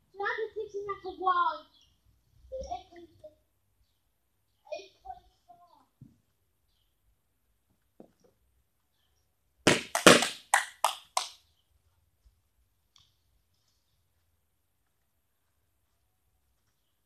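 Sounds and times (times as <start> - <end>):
sharp loud knocks: 9.7 - 10.4.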